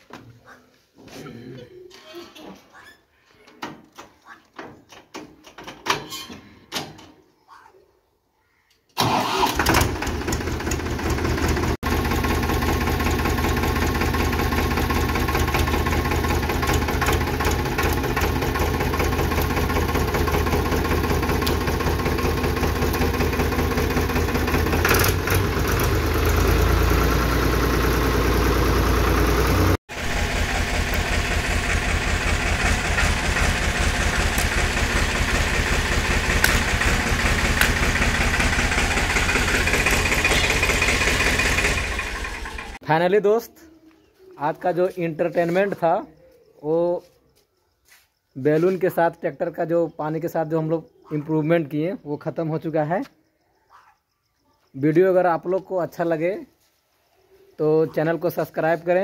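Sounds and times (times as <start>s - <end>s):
tractor diesel engine running: 9.0s - 42.8s
sharp crack: 30.9s - 38.6s.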